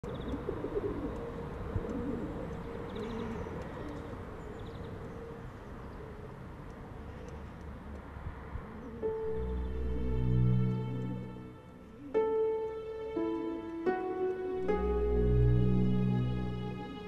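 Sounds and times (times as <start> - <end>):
pigeons cooing: 0.1 - 6.3.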